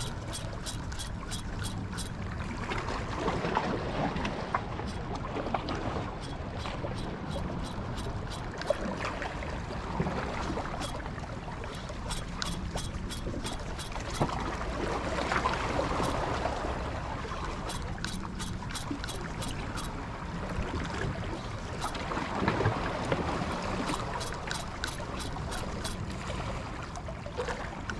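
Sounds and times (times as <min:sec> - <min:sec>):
water at the coast: 0:00.0 - 0:27.9
wind: 0:00.0 - 0:27.9
light ticks: 0:11.7 - 0:14.3.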